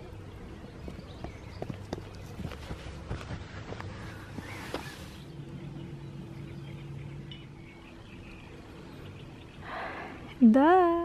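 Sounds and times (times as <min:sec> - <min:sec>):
distant engine hum: 0:00.0 - 0:11.0
footsteps: 0:00.9 - 0:05.2.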